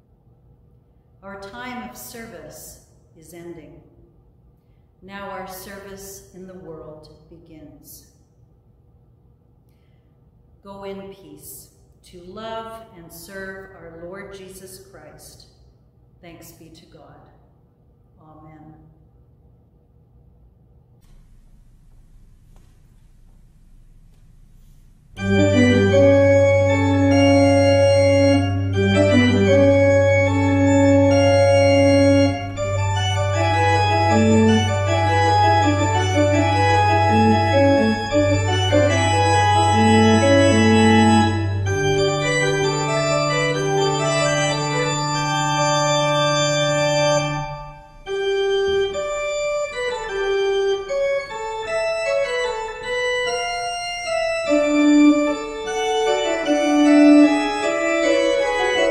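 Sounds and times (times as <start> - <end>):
pipe organ playing chords: 21.1 - 58.9.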